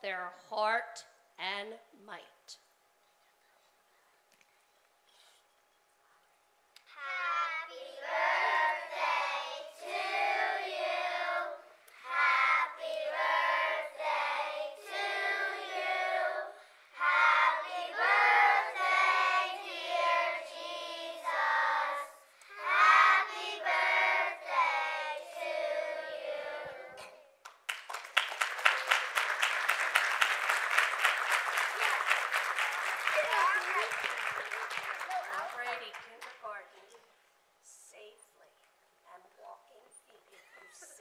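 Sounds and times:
children singing in unison: 7.1 - 27.2.

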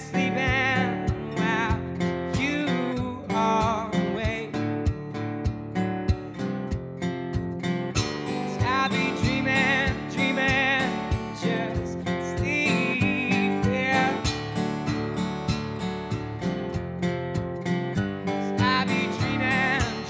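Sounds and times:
man singing: 0.0 - 4.6, 8.4 - 14.4, 18.4 - 20.0
acoustic guitar strumming: 0.0 - 20.0.

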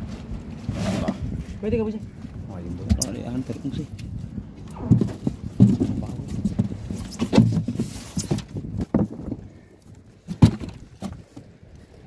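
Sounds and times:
fish and ice knocking and rustling: 4.1 - 11.7.

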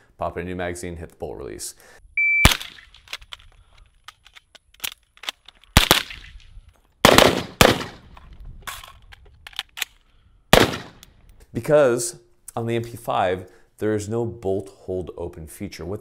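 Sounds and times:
suppressed gunshots: 5.8 - 6.4, 7.0 - 8.2, 10.5 - 11.0.

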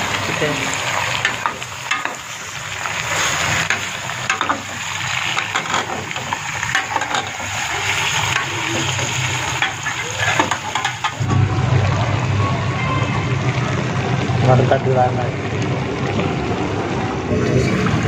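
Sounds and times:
meat sizzling in a pot: 0.0 - 11.2
ladle scraping a pot: 5.3 - 11.2.

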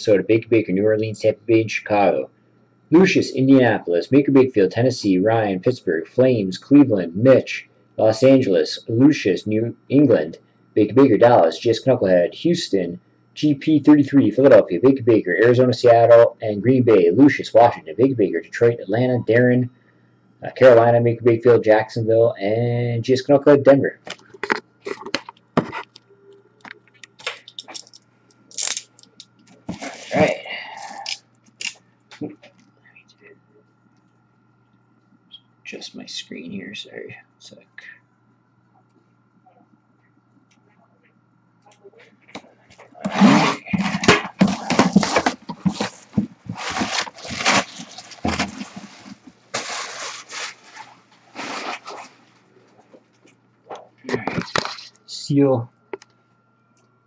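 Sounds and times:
faint steady hum: 0.0 - 57.0
objects clicking and scraping: 26.7 - 30.1
plastic shrink wrap tearing: 27.5 - 29.2, 46.6 - 48.8.

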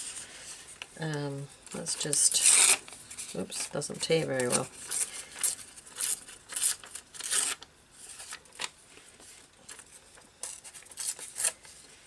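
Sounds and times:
paper rustling: 2.0 - 12.0
paper page tearing: 2.2 - 3.0, 4.4 - 8.7, 10.4 - 11.7.

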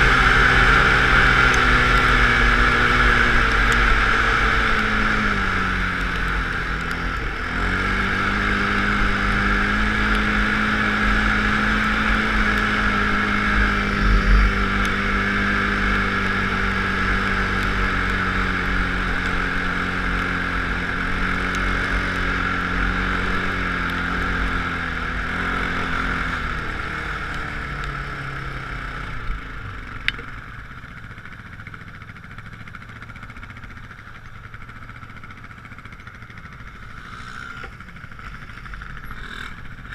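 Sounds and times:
off-road vehicle engine running: 0.0 - 39.9
wind rushing over microphone: 13.3 - 16.0.

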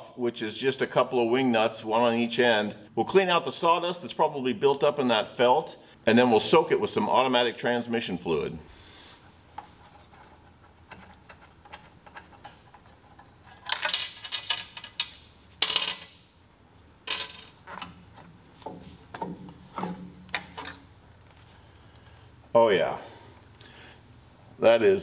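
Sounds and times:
metallic clicks and clinks: 13.6 - 16.2.

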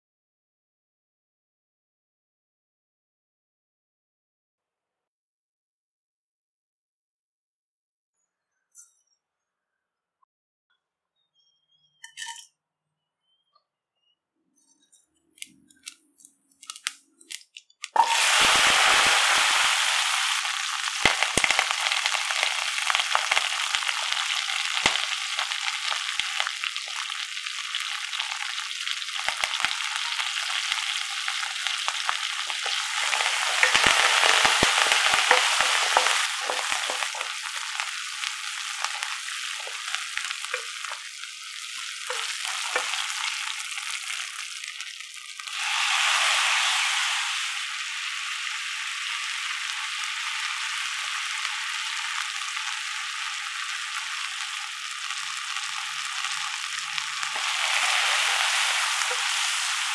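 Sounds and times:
seeds dropped into oil: 15.4 - 19.6, 20.3 - 27.2, 29.1 - 44.3
food sizzling in hot oil: 17.8 - 59.9.

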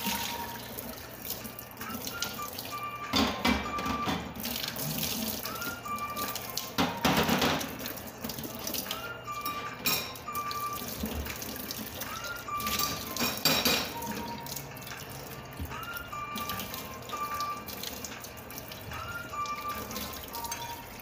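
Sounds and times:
tap running into metal cookware: 6.8 - 7.8.

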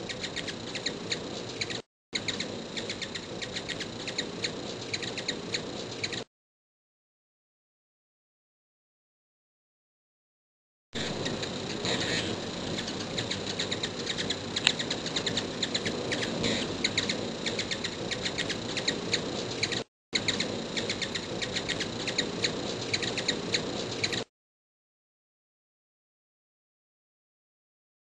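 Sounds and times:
hummingbirds chipping: 0.0 - 6.3, 11.0 - 24.3
steady background hiss: 11.0 - 24.2.

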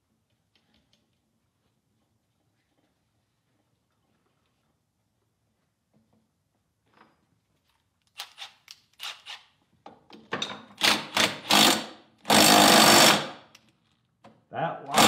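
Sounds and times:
power tool running: 10.8 - 13.3.

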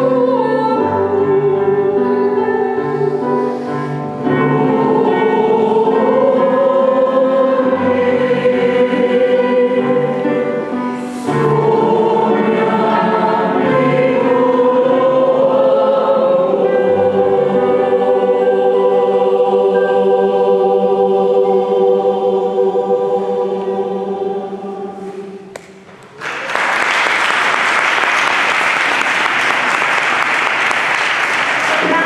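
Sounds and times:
choir holding a chord: 0.0 - 25.6
audience applause: 26.1 - 32.0.

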